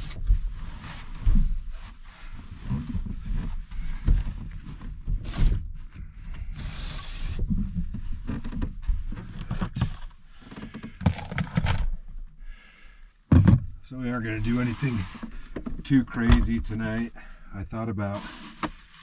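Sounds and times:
knocks and thumps: 13.3s - 13.8s
scraping rustle: 14.2s - 17.0s, 18.1s - 19.0s
rustling: 18.1s - 19.0s.

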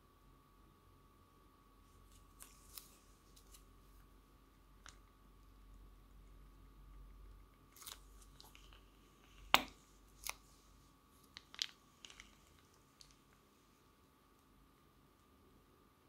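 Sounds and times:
slime crackling and popping: 7.6s - 10.5s, 11.2s - 13.4s.

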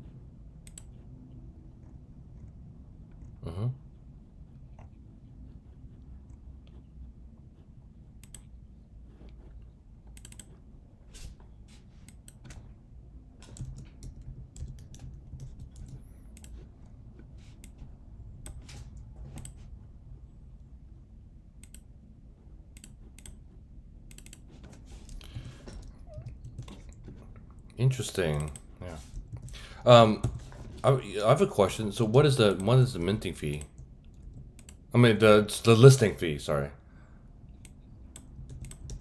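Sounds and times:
low steady background hum: 0.0s - 39.0s
keyboard typing: 10.1s - 10.6s, 13.4s - 16.7s, 24.1s - 27.4s, 37.6s - 39.0s.

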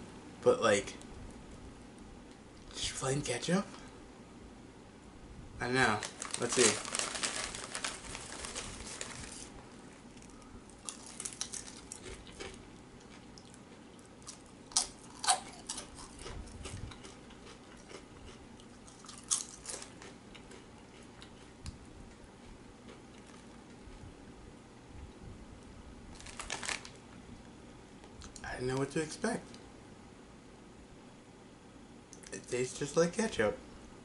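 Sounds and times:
chip bag crinkling: 5.6s - 18.0s, 18.6s - 20.6s, 26.1s - 27.0s
crunching and chewing chips: 5.9s - 23.8s, 26.1s - 27.0s.

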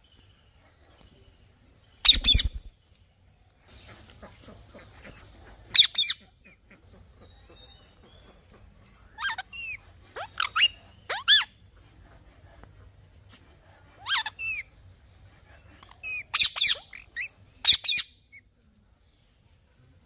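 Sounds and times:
parakeets calling: 2.0s - 2.7s, 5.7s - 6.6s, 9.2s - 11.5s, 15.8s - 18.1s.

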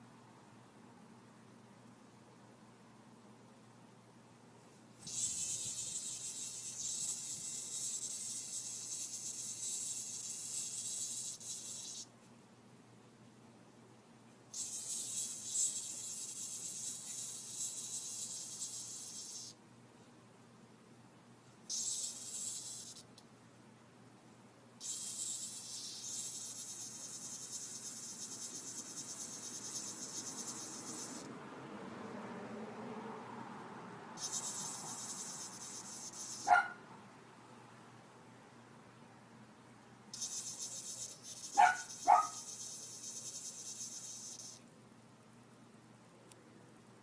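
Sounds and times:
cicada distress buzz: 5.0s - 12.1s, 14.5s - 19.6s, 21.7s - 23.1s, 24.8s - 31.3s, 34.1s - 36.8s, 40.1s - 44.6s.

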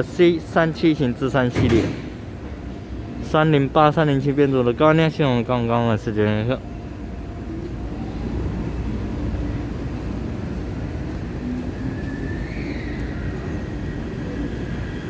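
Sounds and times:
metro train rumbling: 0.0s - 15.0s.

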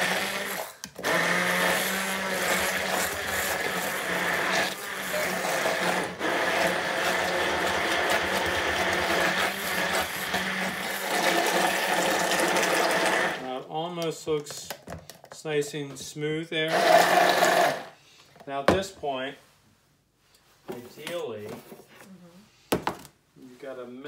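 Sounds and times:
immersion blender motor running: 0.0s - 13.4s, 16.7s - 18.0s.

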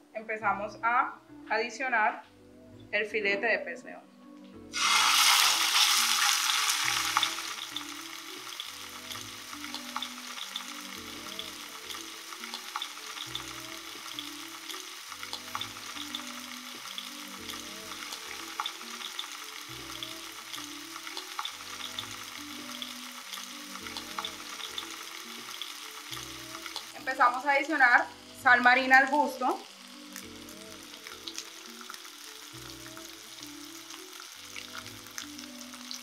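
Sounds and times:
fish sizzling in oil: 4.7s - 36.0s.

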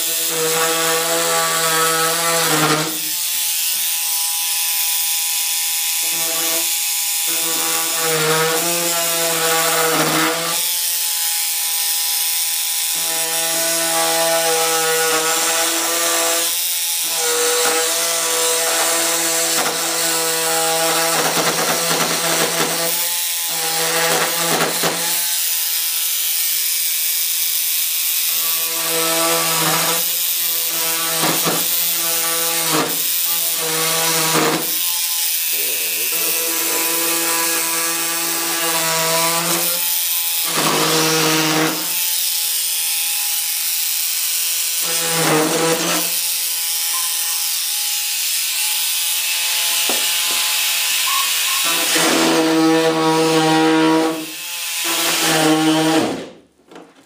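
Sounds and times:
rotary tool cutting fiberglass: 0.0s - 56.4s.

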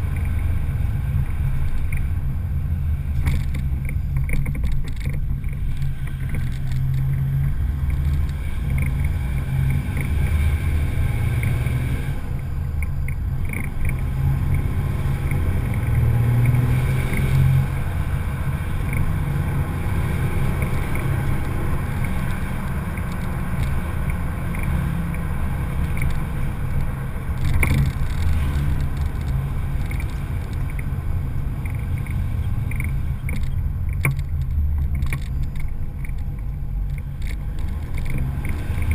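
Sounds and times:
diesel engine rumble: 0.0s - 38.9s
road and wind noise: 0.0s - 38.9s.

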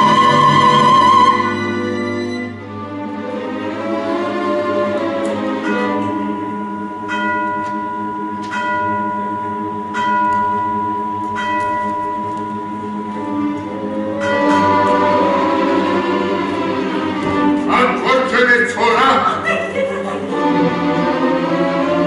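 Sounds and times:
orchestra sustained notes: 0.0s - 22.0s
bell striking: 5.6s - 13.5s
steady high tone: 5.6s - 19.1s.

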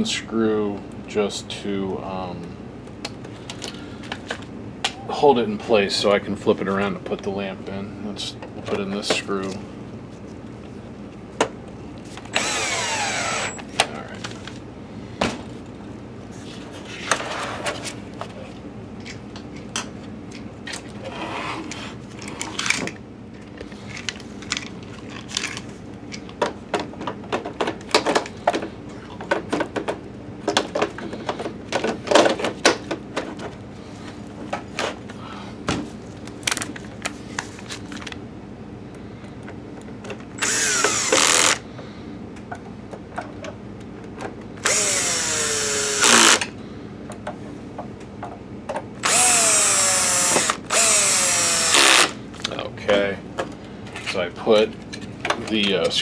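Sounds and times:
cordless drill whining: 12.3s - 13.6s, 40.4s - 41.6s, 44.6s - 46.5s, 49.0s - 52.2s.

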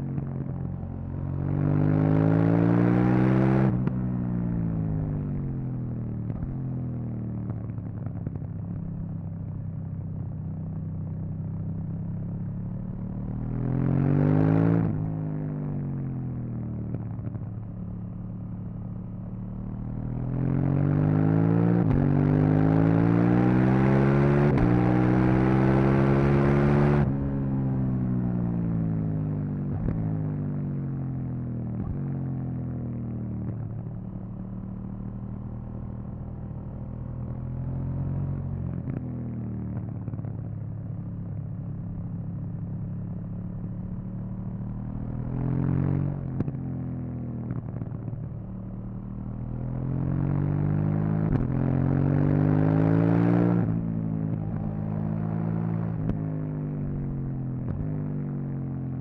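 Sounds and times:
motorcycle engine revving: 43.9s - 58.0s.

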